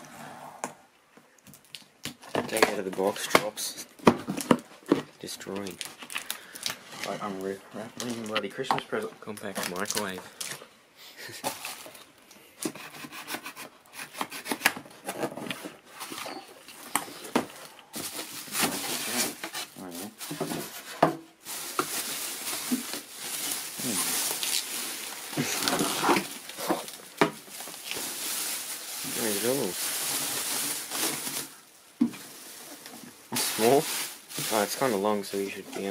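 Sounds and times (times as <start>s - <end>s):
plastic bag crinkling: 4.4s - 10.6s, 21.4s - 35.9s.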